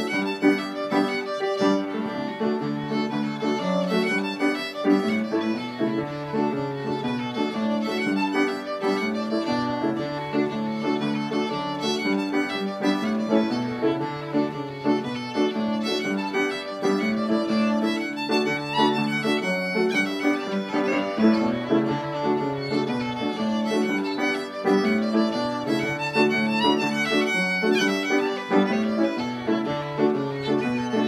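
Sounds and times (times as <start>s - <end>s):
fiddle playing tune: 0.0s - 31.0s
upright piano accompaniment: 0.0s - 31.0s.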